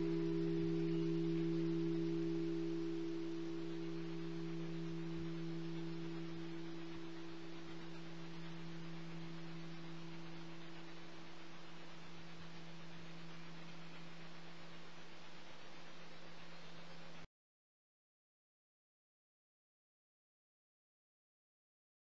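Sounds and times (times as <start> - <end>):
large bell tone ringing: 0.0 - 16.3.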